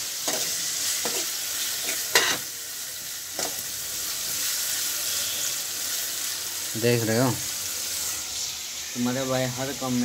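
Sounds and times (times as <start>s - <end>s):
vegetables sizzling in pan: 0.0s - 10.0s
steel spoon scraping pan: 0.2s - 2.4s.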